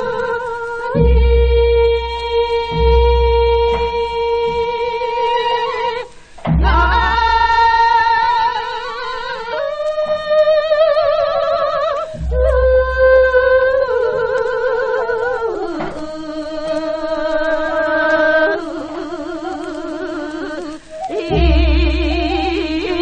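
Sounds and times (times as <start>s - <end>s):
woman singing with vibrato: 0.0s - 23.0s
low thump: 6.4s - 7.3s.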